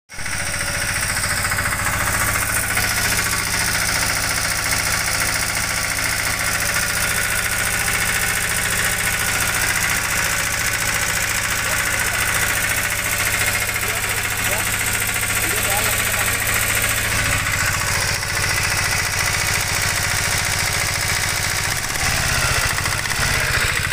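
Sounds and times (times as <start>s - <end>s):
three-wheeler engine idling: 0.1s - 23.9s.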